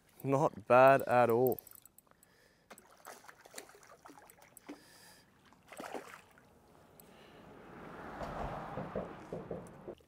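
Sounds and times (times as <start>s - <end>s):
fish splashing in water: 2.8s - 6.7s.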